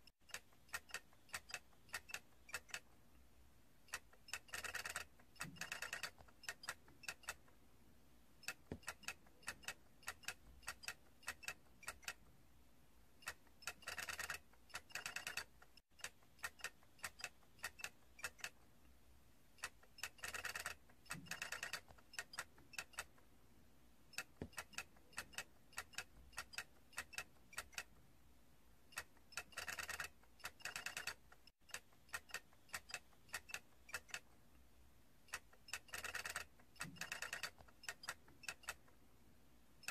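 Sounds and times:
plastic toy clicking and rattling: 0.3s - 2.9s, 3.9s - 7.5s, 13.2s - 18.6s, 19.6s - 23.2s, 24.2s - 27.9s, 28.9s - 34.3s, 35.3s - 38.9s.

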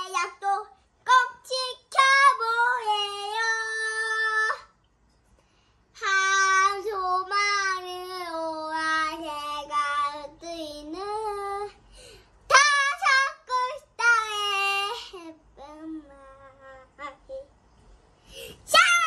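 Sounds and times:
girl singing high notes: 12.5s - 17.5s, 18.5s - 19.0s.

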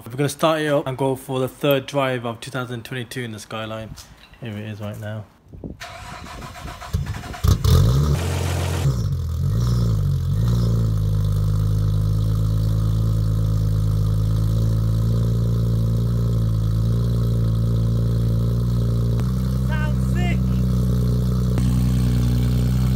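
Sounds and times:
car engine starter cranking: 5.8s - 9.0s
car engine revving and idling: 7.5s - 22.9s.

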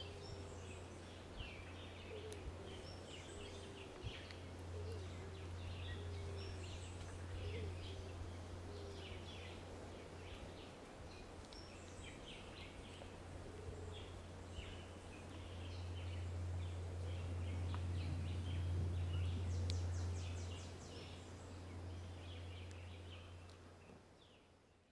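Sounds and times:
small birds calling: 0.0s - 24.5s
low rumble: 14.0s - 23.5s.

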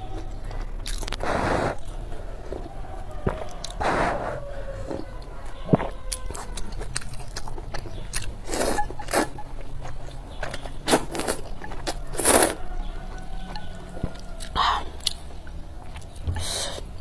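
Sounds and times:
wet chewing clicks: 0.1s - 2.0s, 2.6s - 3.9s, 4.9s - 16.6s
noodles being slurped: 10.9s - 12.6s.

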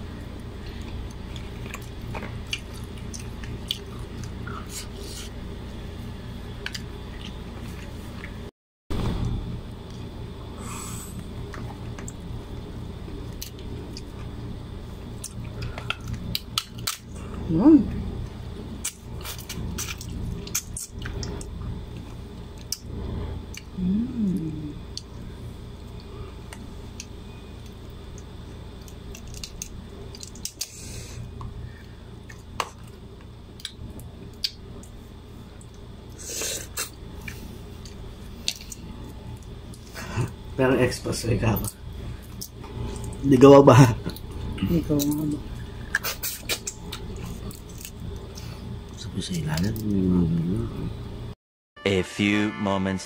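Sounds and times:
low background hum: 0.0s - 53.0s
crab shell cracking: 15.3s - 17.1s, 28.8s - 30.8s.

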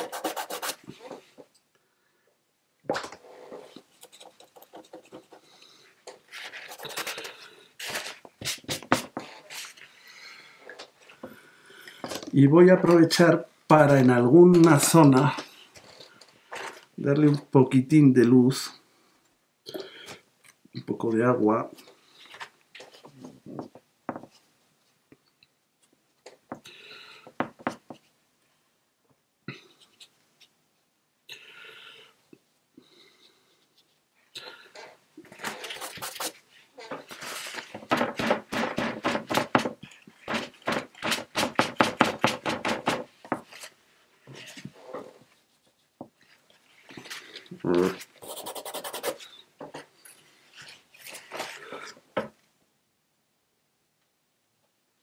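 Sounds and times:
rasping brush strokes: 0.0s - 0.8s, 47.9s - 49.4s
brush scratching on paper: 0.0s - 1.2s, 6.3s - 9.8s, 35.4s - 36.4s, 47.8s - 49.4s.

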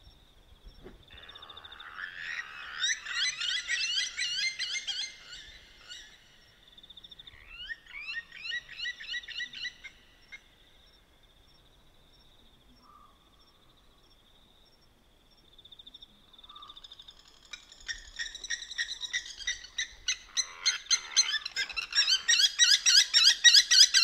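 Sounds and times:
lapwings metallic tink calls: 16.5s - 24.0s.

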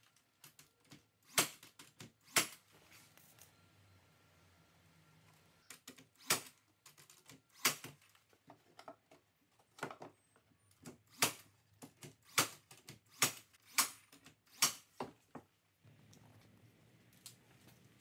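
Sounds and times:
nail gun firing: 1.2s - 2.6s, 6.1s - 6.6s, 7.5s - 8.0s, 11.1s - 11.5s, 12.2s - 15.0s.

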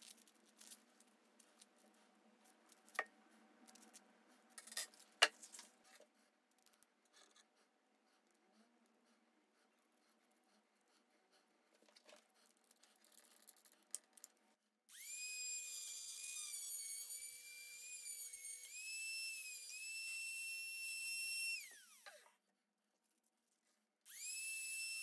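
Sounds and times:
rotary tool motor whine: 14.9s - 22.2s, 24.1s - 25.0s.

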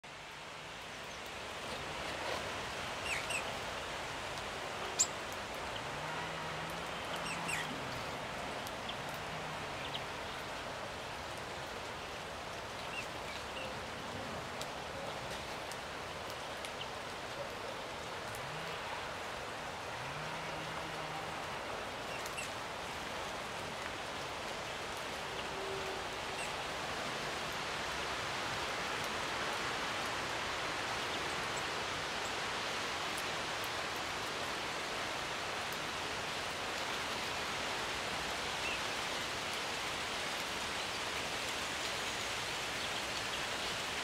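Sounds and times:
steady outdoor hiss: 0.0s - 44.0s.

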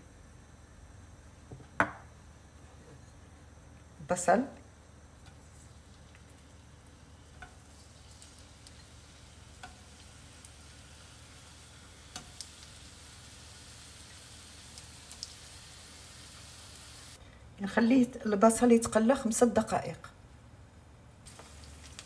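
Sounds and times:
onion sizzling in hot oil: 4.1s - 17.2s, 21.2s - 22.0s.

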